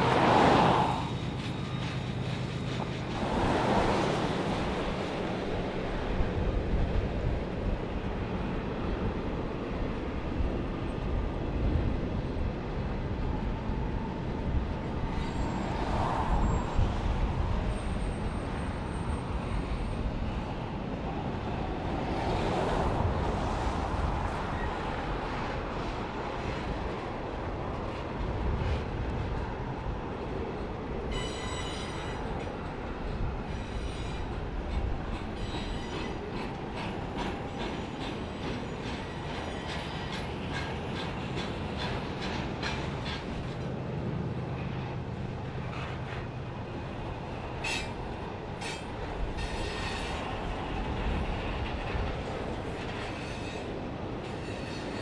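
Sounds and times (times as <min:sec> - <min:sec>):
train wheels rumbling on rail: 0:00.0 - 0:55.0
high-pitched wheel squeal: 0:15.1 - 0:16.9, 0:31.1 - 0:32.3.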